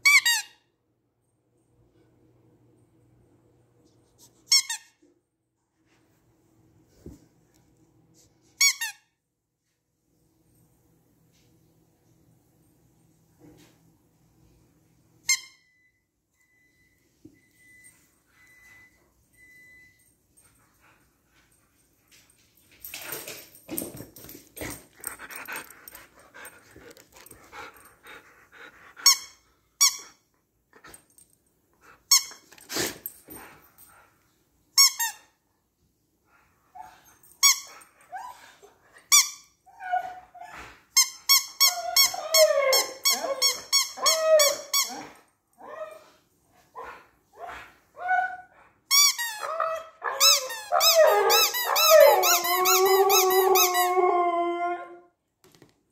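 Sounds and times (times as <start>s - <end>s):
squeaky toy ball squeaking: 4.5s - 4.9s, 29.0s - 30.2s, 32.1s - 32.4s, 34.8s - 35.2s, 50.2s - 53.8s
dog whining: 36.8s - 46.2s, 46.8s - 55.0s.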